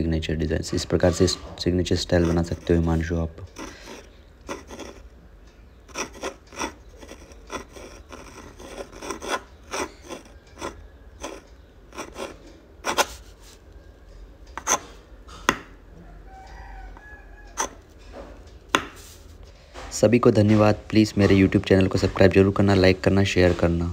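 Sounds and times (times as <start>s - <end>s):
pen scratching on paper: 2.1s - 2.9s, 3.5s - 5.1s, 5.9s - 13.6s.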